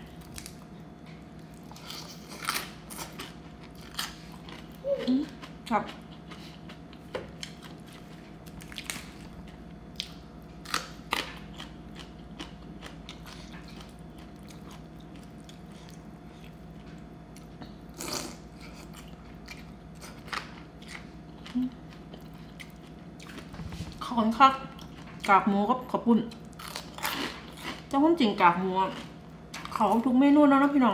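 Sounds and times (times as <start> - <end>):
faint steady hum: 0.0 - 30.9
chewing: 1.4 - 24.1, 24.7 - 25.3.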